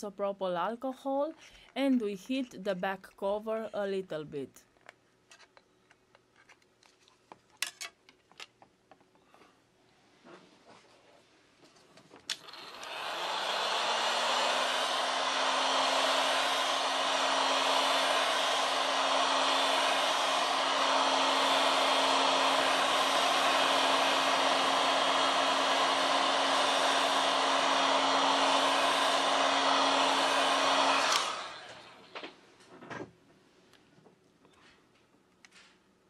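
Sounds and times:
hot-air gun blowing: 12.3 - 32.2.

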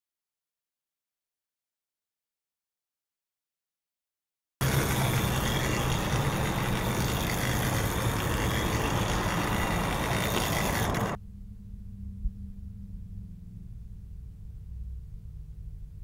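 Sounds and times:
faint hum: 4.6 - 16.0
mechanical whirring and rumbling: 4.6 - 16.0.

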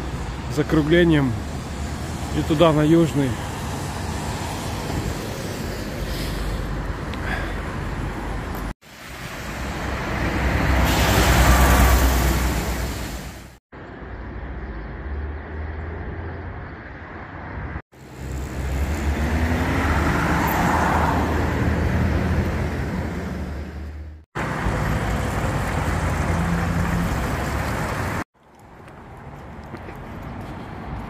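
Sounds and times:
highway traffic: 0.0 - 31.0
vehicle passing close: 18.0 - 28.2.

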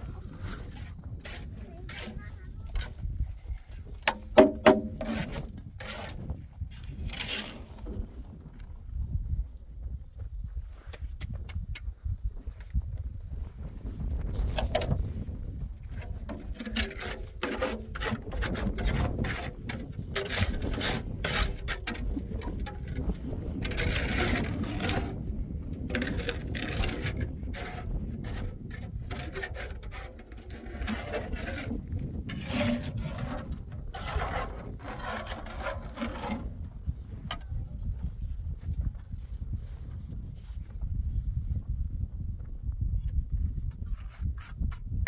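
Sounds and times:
wind rumble on microphone: 0.0 - 45.0
scraping and rubbing strokes: 0.1 - 8.0, 15.9 - 36.6, 43.8 - 44.8.

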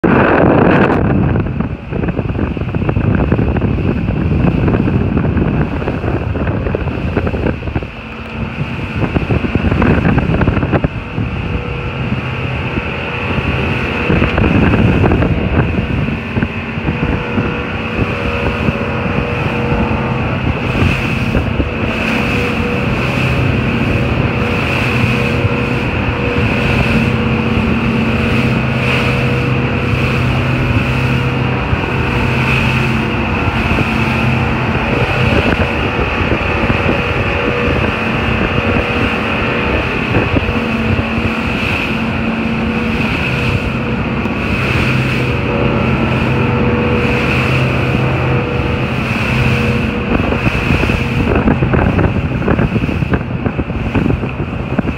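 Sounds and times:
boat engine drone: 0.0 - 54.9
wind rushing on microphone: 0.0 - 54.9
hiss of spray and wake: 11.5 - 54.9.

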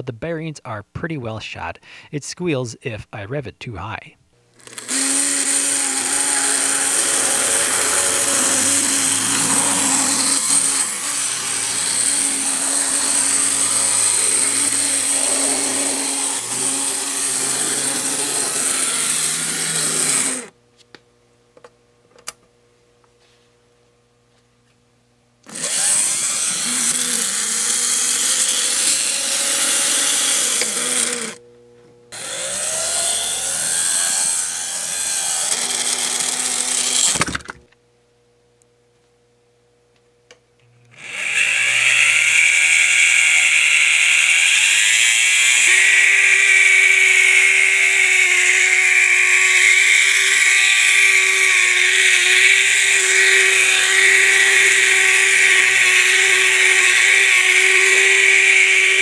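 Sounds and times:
toy train motor whirring grind: 4.5 - 20.6, 25.5 - 31.4, 32.1 - 37.6, 40.9 - 59.0.

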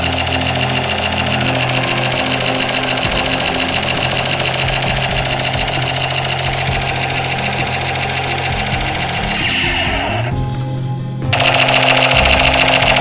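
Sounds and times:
toy machine gun rattle: 0.0 - 10.0, 11.4 - 13.0.

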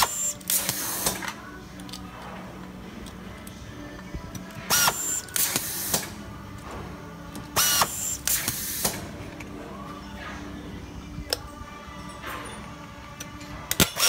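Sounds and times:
hiss: 4.9 - 6.2, 7.6 - 9.1.

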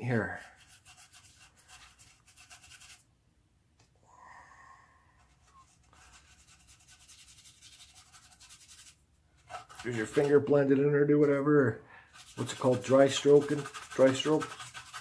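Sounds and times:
paintbrush scratching on wood: 0.1 - 3.0, 5.2 - 10.5, 12.1 - 15.0.

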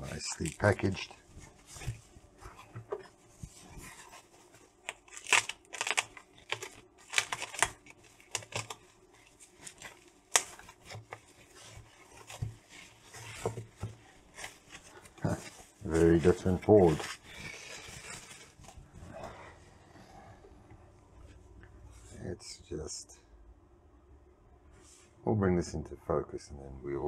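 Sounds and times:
plastic wrap crinkling: 0.0 - 19.1
plastic tearing: 3.8 - 18.8.

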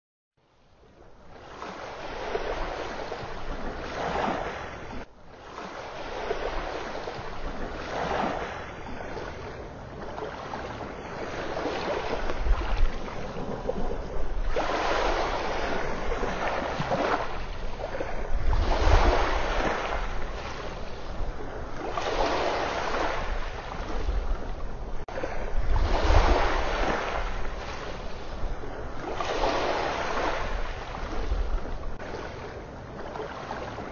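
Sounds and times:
ocean surf washing onto beach: 1.4 - 33.9.

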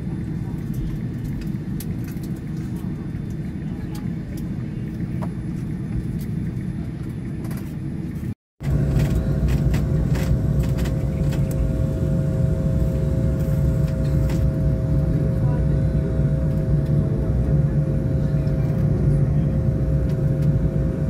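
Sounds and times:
aircraft cabin rumble: 0.0 - 21.0
jet engines whining: 0.0 - 21.0.

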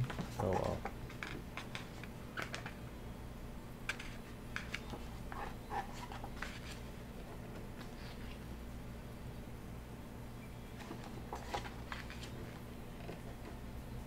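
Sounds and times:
page turning: 3.9 - 6.9, 10.8 - 13.2
paper rustling: 3.9 - 7.0, 10.8 - 13.3.

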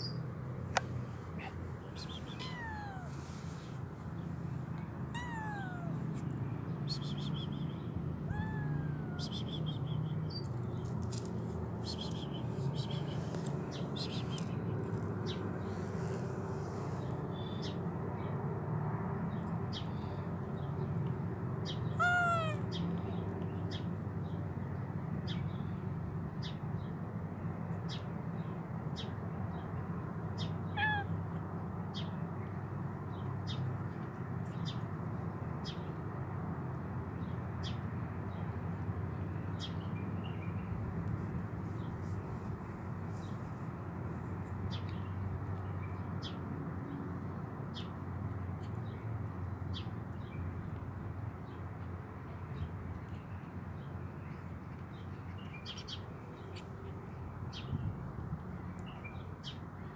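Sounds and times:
kitten meowing: 1.4 - 3.5, 5.1 - 6.2, 8.3 - 9.7, 21.9 - 22.8, 30.8 - 31.1.

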